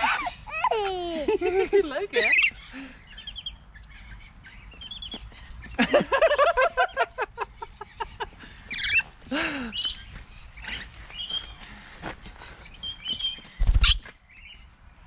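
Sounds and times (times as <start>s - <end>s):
parrots chirping and squawking: 0.0s - 0.8s, 2.2s - 5.8s, 7.5s - 11.6s, 12.4s - 14.6s.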